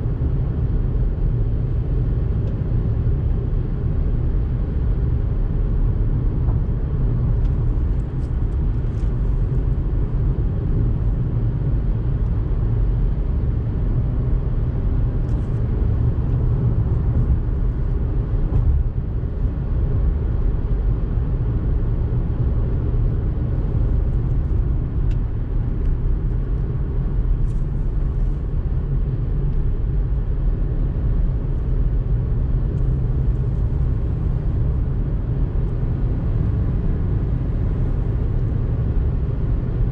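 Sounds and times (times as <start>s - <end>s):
car engine and tyre rumble: 0.0s - 39.9s.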